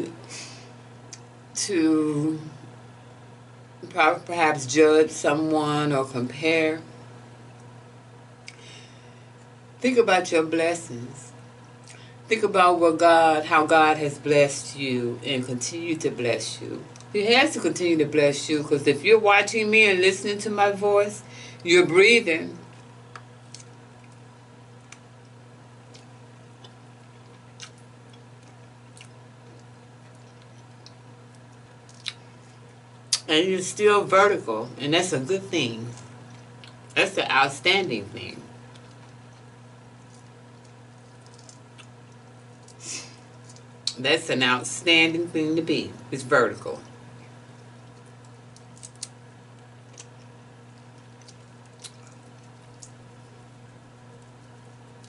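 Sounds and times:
steady low hum: 0.0s - 55.0s
chewing: 22.7s - 33.2s, 35.9s - 37.0s, 38.7s - 44.0s, 47.5s - 53.4s
soft clicks of shrimp peeling: 22.7s - 33.2s, 38.7s - 44.0s, 47.2s - 55.0s.

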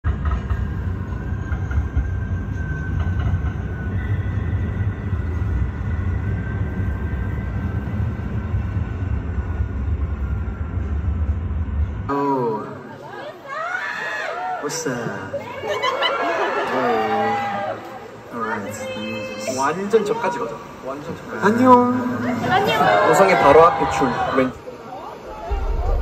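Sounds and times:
train rumble: 0.0s - 12.1s, 25.2s - 26.0s.

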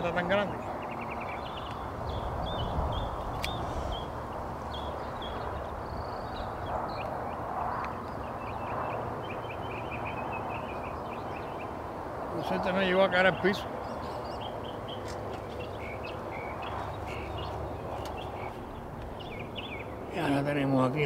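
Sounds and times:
birds chirping and calling: 0.0s - 21.0s
sharp click: 3.4s - 3.6s.

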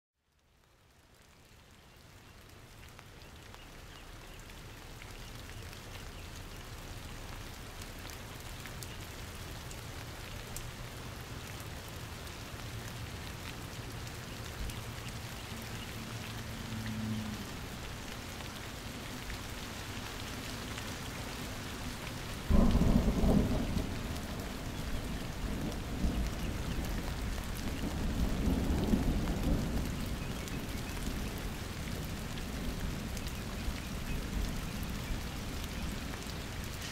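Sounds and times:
steady rain falling: 0.2s - 36.9s
thunder crack and rumble: 22.4s - 33.2s.

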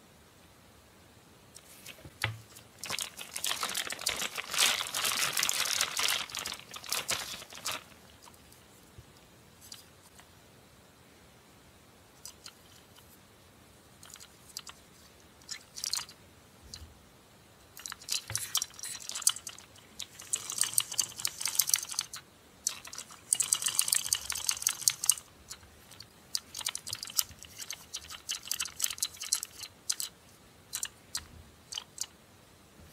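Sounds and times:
plastic toy clicking and rattling: 2.2s - 8.4s, 14.0s - 14.8s, 15.4s - 16.1s, 17.8s - 32.1s.

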